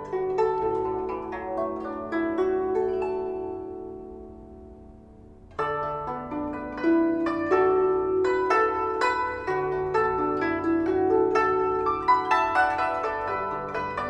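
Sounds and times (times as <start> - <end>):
zither plucked melody: 0.0 - 14.0.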